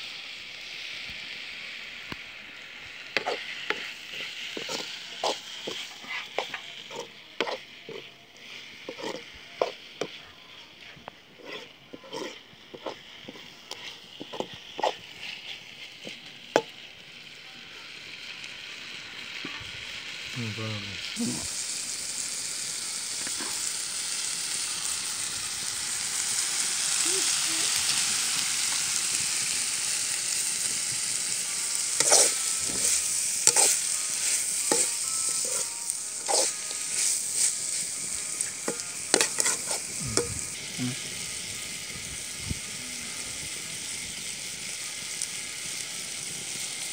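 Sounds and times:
stir-fry sizzling in a pan: 0.0 - 46.9
metal spoon scraping a pan: 3.2 - 8.1, 8.8 - 10.1, 11.4 - 15.6, 31.8 - 40.4.

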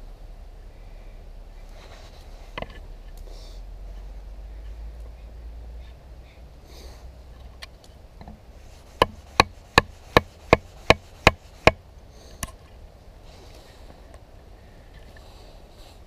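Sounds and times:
wooden baton striking knife spine: 9.0 - 11.8.

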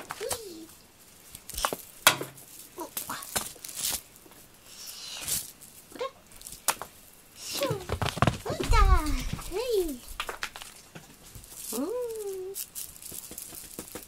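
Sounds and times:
toy swishing: 0.2 - 5.7, 11.3 - 14.0
paws pouncing on carpet: 7.6 - 11.7, 12.9 - 14.0
cat playing with wand toy: 11.4 - 14.0.

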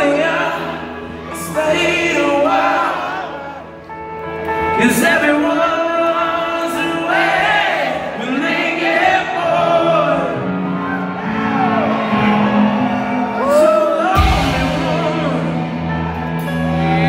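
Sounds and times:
live rock band playing: 9.8 - 17.0
pitch-bending lead melody: 10.4 - 17.0.

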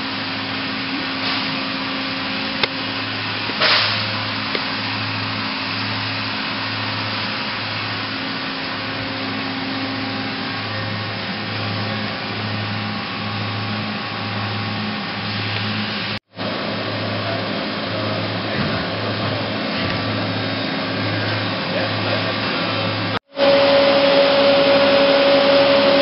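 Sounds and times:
shop machinery hiss and hum: 0.0 - 26.0
pulsing low hum: 23.0 - 26.0.

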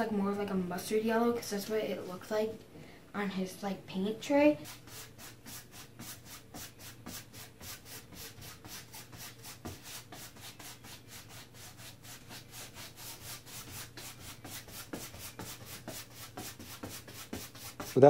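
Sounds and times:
paintbrush scrubbing on canvas: 4.6 - 18.0.

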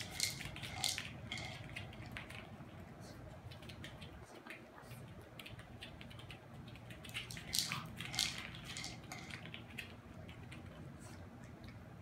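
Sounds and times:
plastic toy clicks and knocks: 0.0 - 1.7
dog crunching dry kibble: 0.0 - 2.8, 3.5 - 10.8.

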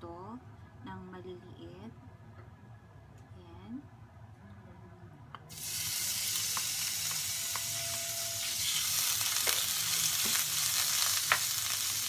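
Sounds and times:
beef sizzling in a frying pan: 5.5 - 12.0.

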